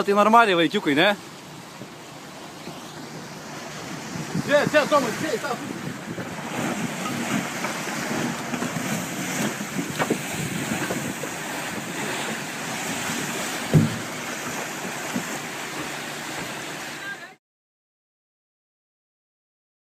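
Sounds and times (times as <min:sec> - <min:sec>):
waves churning: 0:00.0 - 0:17.4
wind buffeting microphone: 0:02.6 - 0:16.7
sharp thump: 0:13.7 - 0:14.2.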